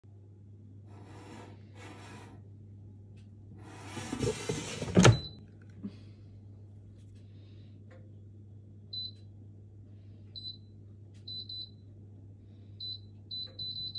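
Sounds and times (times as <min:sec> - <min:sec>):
air fryer drawer scraping: 0:03.6 - 0:05.3
drawer sliding shut with clunk: 0:03.7 - 0:05.3.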